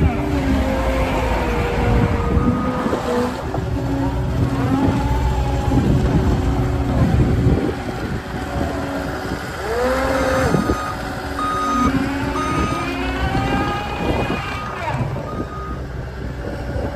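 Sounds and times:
diesel engine running: 0.0 - 16.9
reversing alarm beeps: 10.5 - 15.9.

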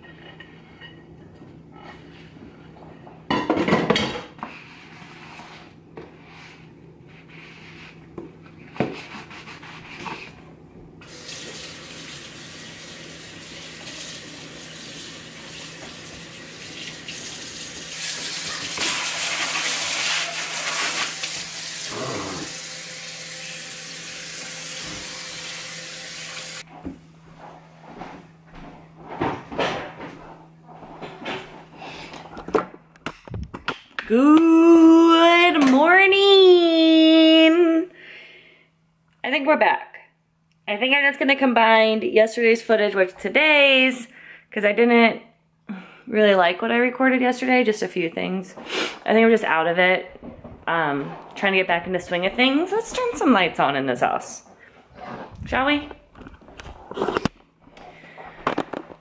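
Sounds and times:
faucet water running: 11.0 - 26.7.

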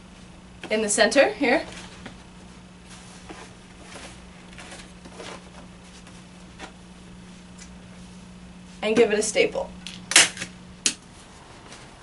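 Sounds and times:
steady low hum: 0.0 - 12.0
canvas fabric scuffing and rustling: 1.6 - 9.0.

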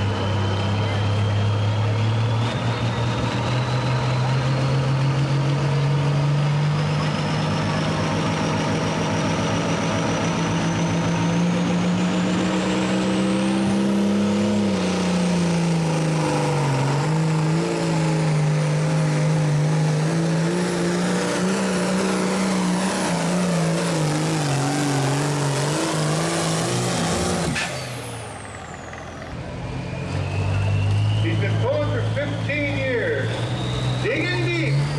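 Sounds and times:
diesel tractor engine at full throttle: 0.0 - 34.9
high turbo whistle: 29.6 - 32.0, 33.1 - 34.4.

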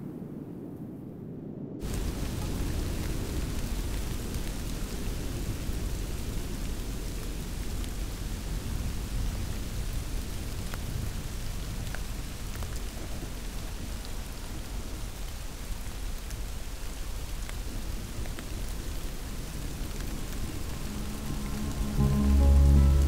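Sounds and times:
steady rain falling: 1.8 - 23.0
low rumble: 19.4 - 23.0.

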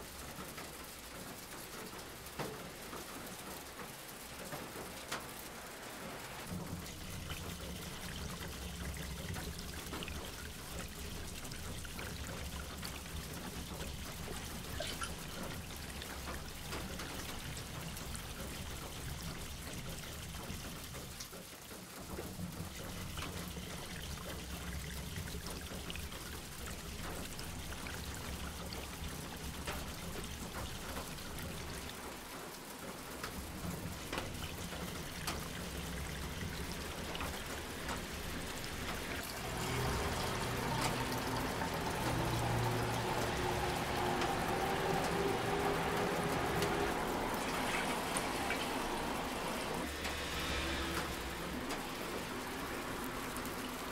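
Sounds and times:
water pouring onto soil: 32.7 - 53.9.

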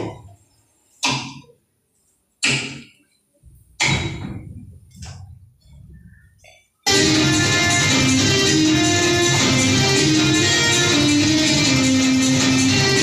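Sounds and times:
sharp thuds: 3.8 - 5.4.

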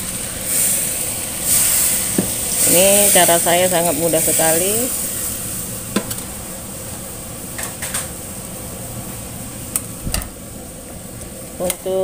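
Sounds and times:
food hissing in a wok: 0.0 - 9.6.

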